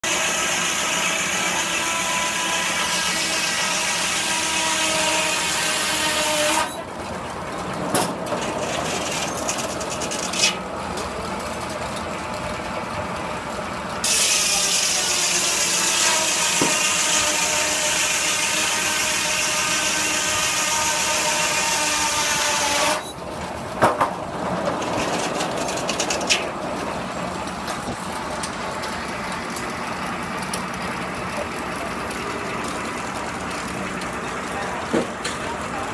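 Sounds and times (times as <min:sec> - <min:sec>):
circular saw cutting log: 0:00.0 - 0:06.9, 0:08.2 - 0:10.7, 0:13.4 - 0:23.2, 0:23.8 - 0:35.9
machine hum: 0:22.7 - 0:35.9
log carriage clunks: 0:23.4 - 0:29.8, 0:34.8 - 0:35.4.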